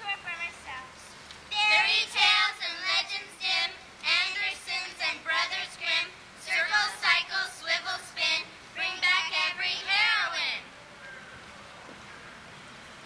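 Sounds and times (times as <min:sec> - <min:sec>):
girls and woman singing: 0:01.5 - 0:10.7.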